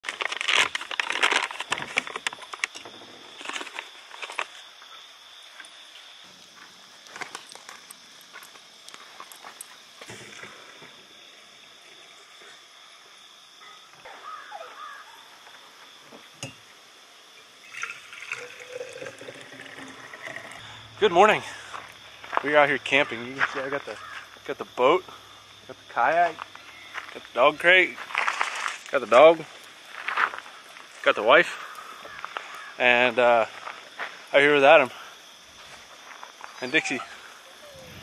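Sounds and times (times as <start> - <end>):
coffee bag rustling: 0.0 - 4.7, 17.7 - 20.6, 28.0 - 30.9
coffee pouring into tumbler: 17.6 - 20.8
hot water pouring: 17.6 - 21.5.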